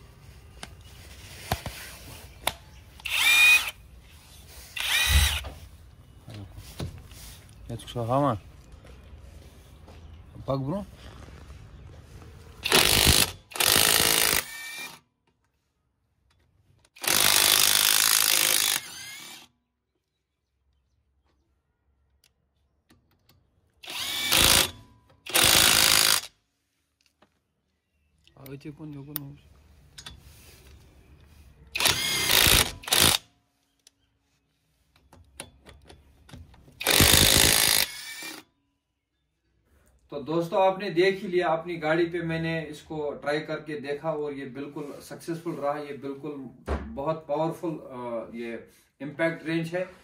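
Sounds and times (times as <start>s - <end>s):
impact wrench whir: 3.0s - 3.8s, 4.8s - 5.6s, 12.6s - 15.0s, 16.9s - 19.5s, 23.8s - 26.3s, 31.8s - 33.2s, 36.8s - 38.4s.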